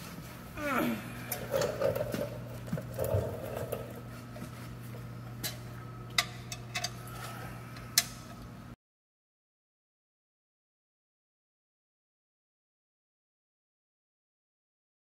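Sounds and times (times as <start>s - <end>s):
low shop hum: 0.0s - 8.8s.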